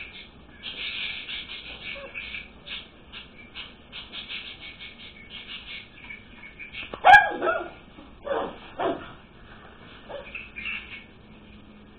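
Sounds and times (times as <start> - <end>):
puppy barking: 7.0 - 9.2.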